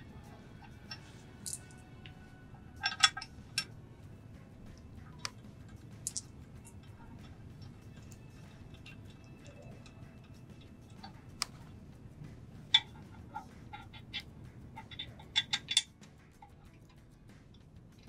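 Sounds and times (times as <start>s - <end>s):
metal bolts clinking: 0.2s - 2.1s, 2.7s - 3.8s, 4.6s - 11.7s, 12.7s - 17.0s.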